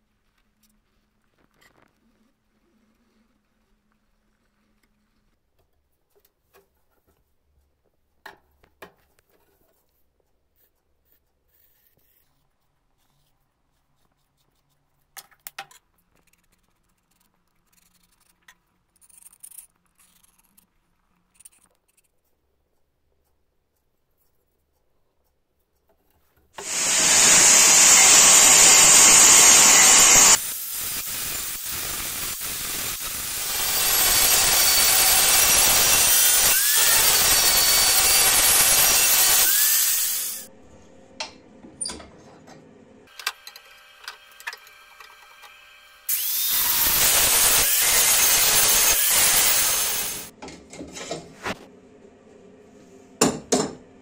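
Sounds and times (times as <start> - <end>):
angle grinder grinding steel: 26.6 - 40.5, 46.1 - 50.3.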